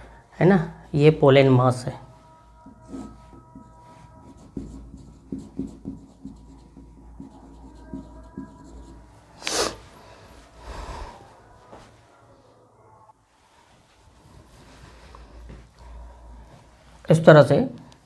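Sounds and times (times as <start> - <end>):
pen scratching on paper: 2.4 - 10.3.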